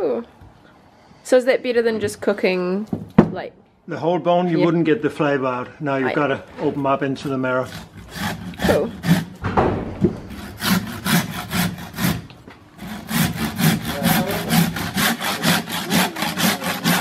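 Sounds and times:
hand saw cutting bone: 7.2s - 9.4s, 10.3s - 17.0s.

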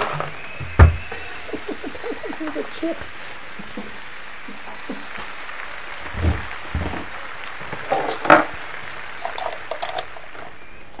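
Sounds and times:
steady hiss: 0.0s - 11.0s
kitchen items clattering: 9.2s - 10.3s.

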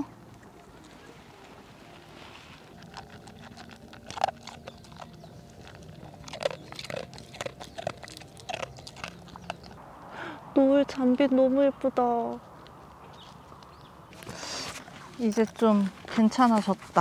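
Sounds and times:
dog crunching and chewing food: 2.6s - 9.8s.

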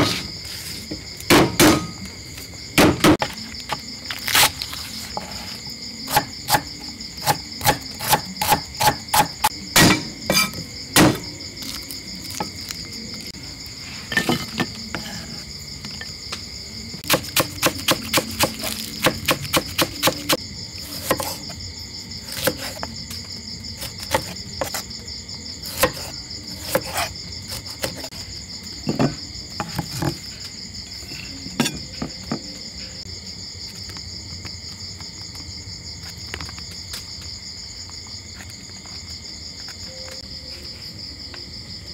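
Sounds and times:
insects trilling: 0.0s - 41.9s
cleaver chopping on wooden block: 1.3s - 2.0s, 6.1s - 11.3s, 17.0s - 21.4s, 25.7s - 28.0s.

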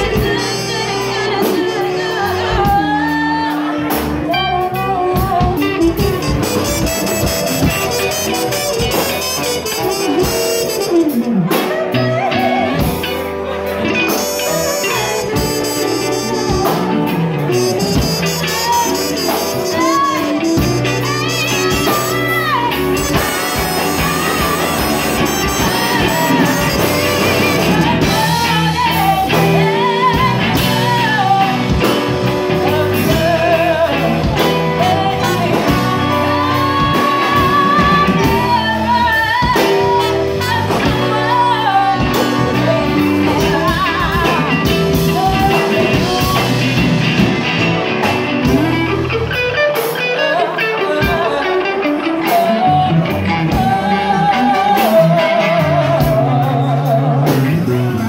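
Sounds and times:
trumpet: 0.0s - 3.8s, 5.6s - 12.7s, 13.9s - 29.0s, 39.3s - 42.7s
bass guitar: 0.0s - 58.0s
drums: 0.0s - 58.0s
saxophone: 0.0s - 58.0s
woman singing: 0.0s - 58.0s.

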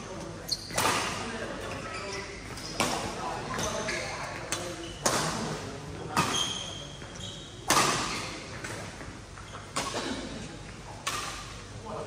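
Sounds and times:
shoes squeaking on court: 0.0s - 10.0s
racket hitting shuttlecock: 7.6s - 8.8s.

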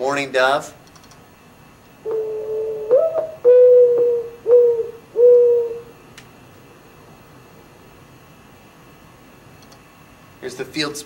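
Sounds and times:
mourning dove cooing: 2.0s - 6.0s.

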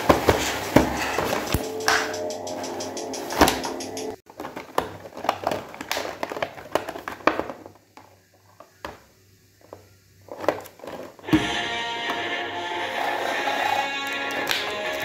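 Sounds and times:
plastic tray crinkling and clicking: 4.3s - 11.2s.

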